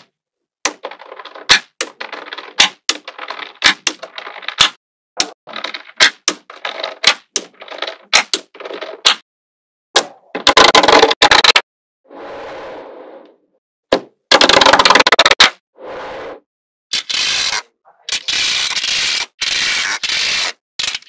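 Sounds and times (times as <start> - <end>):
balls clattering: 0.7 - 4.8, 5.5 - 9.2, 10.2 - 11.6, 14.3 - 15.5.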